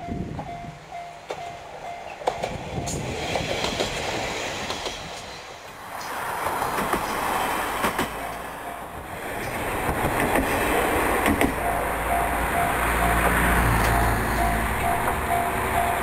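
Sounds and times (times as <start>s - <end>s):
level-crossing bell clanging: 0.0s - 2.5s, 6.6s - 9.2s, 11.5s - 16.0s
train rumble: 0.0s - 16.0s
wheels clacking over rail joints: 0.3s - 16.0s.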